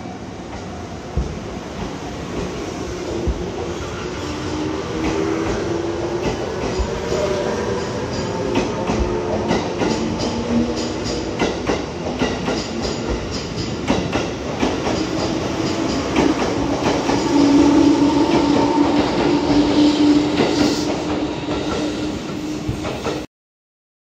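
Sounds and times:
train wheels clicking over rail joints: 0:04.9 - 0:21.9.

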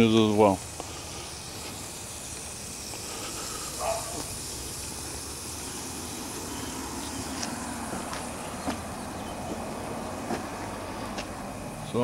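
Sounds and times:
steam hissing from boiler: 0:00.0 - 0:12.0.

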